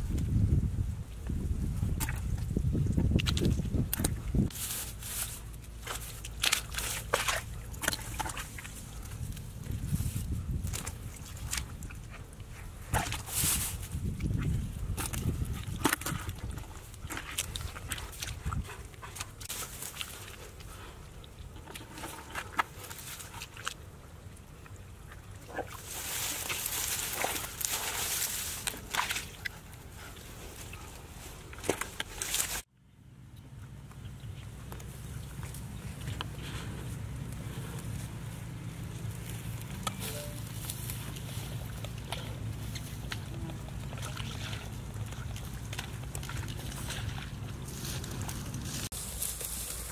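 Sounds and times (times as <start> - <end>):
crackles and rustles: 0.0 - 32.7, 33.8 - 49.9
hands working in wet mud: 0.0 - 32.7, 33.4 - 49.9
footsteps in dry grass: 2.5 - 20.9, 25.7 - 32.7, 34.7 - 49.9.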